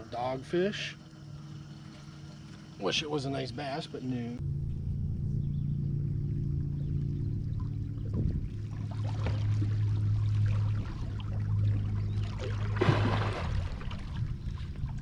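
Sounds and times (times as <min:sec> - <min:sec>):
electric trolling motor humming: 0:00.0 - 0:15.0
loud splash on water: 0:12.5 - 0:14.1.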